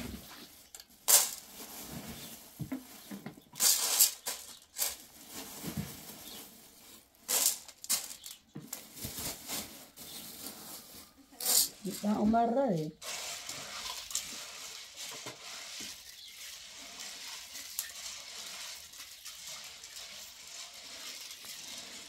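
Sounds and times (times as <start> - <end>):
plastic bag rustling: 0.0 - 22.0
grain pouring into metal pot: 7.0 - 8.4, 12.9 - 22.0.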